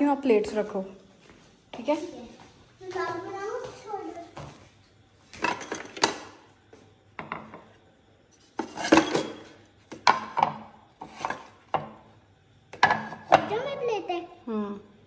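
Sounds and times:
plates clattering: 5.3 - 6.4, 7.2 - 7.7, 8.5 - 12.1, 12.7 - 13.5.

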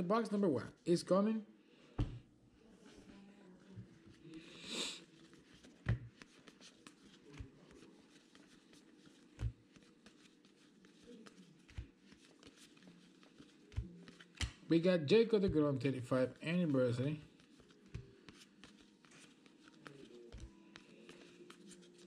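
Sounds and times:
soft thumps: 2.0 - 2.3.

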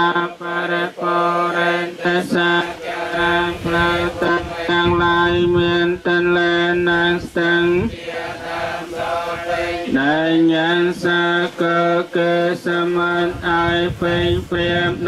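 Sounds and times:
men chanting in unison: 0.0 - 15.0.

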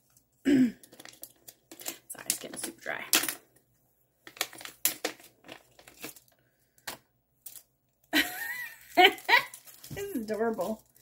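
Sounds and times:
wrapping paper crinkling and tearing: 8.9 - 11.0.

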